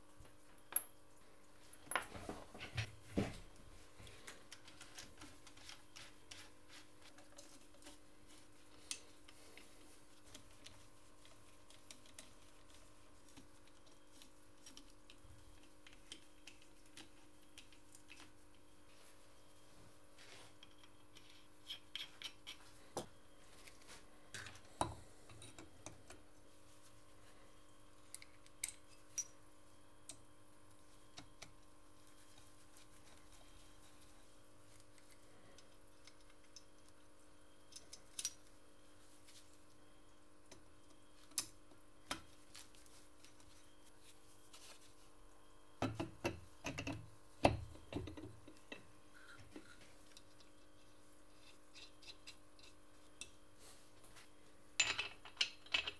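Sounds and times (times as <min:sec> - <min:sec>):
faint steady hum: 0:00.0 - 0:55.9.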